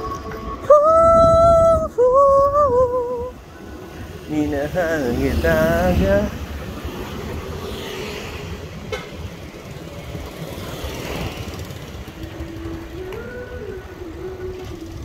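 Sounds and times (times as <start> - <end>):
wind buffeting microphone: 0.0 - 7.8
bicycle road noise: 0.0 - 15.0.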